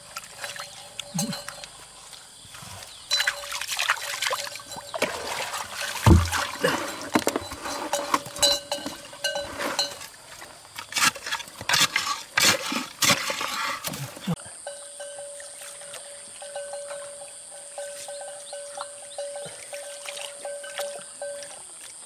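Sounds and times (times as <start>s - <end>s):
hands splashing in muddy water: 3.2s - 7.2s
heavy thump: 6.0s - 6.6s.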